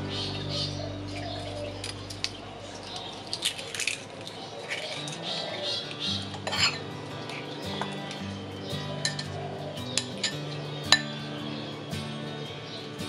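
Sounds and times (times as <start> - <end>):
spoon scraping eggshells: 3.0 - 6.8
spoon clinking on glass bowl: 9.0 - 9.4, 10.0 - 11.1.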